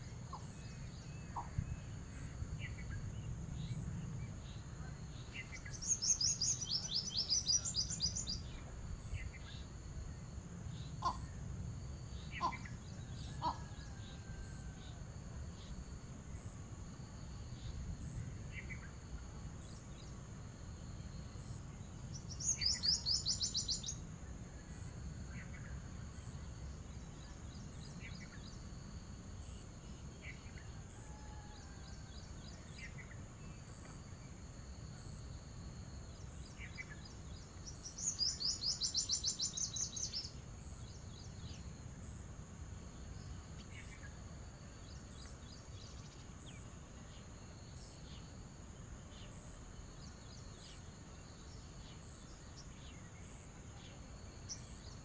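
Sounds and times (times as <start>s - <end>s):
faint bird chirps: 0.0s - 11.4s, 12.1s - 15.0s, 20.9s - 28.8s, 36.0s - 42.2s.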